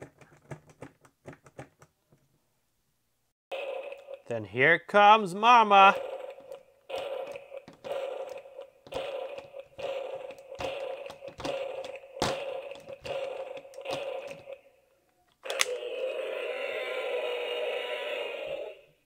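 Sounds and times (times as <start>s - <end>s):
plastic toy thumping on a tabletop: 10.3s - 13.2s
click: 15.3s - 15.8s.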